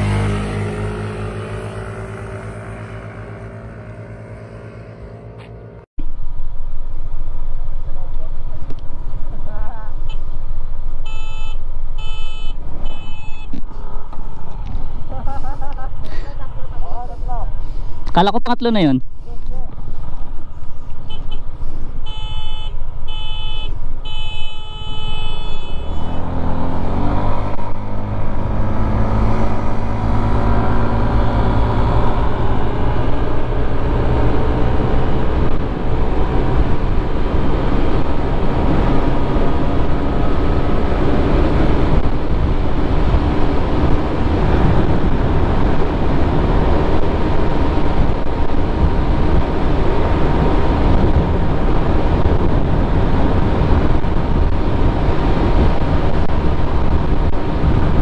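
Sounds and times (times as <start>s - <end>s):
scooter engine accelerating: 0.0s - 5.8s, 25.3s - 58.0s
wind noise: 6.0s - 58.0s
short beeps: 11.0s - 13.6s, 22.0s - 26.2s.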